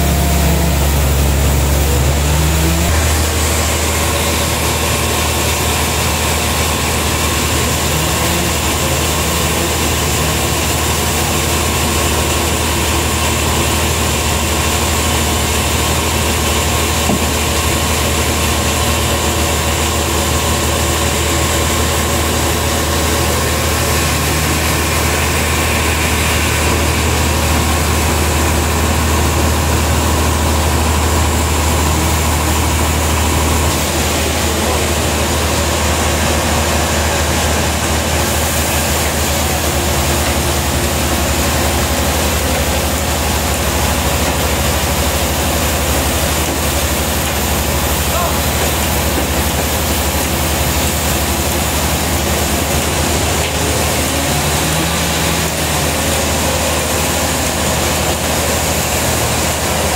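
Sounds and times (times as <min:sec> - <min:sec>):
sawmill engine idling: 0:00.0 - 0:59.9.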